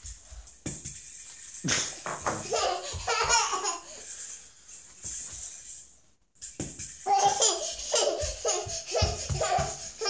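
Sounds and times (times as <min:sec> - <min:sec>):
baby laughing: 0:02.4 - 0:04.0, 0:07.1 - 0:10.0.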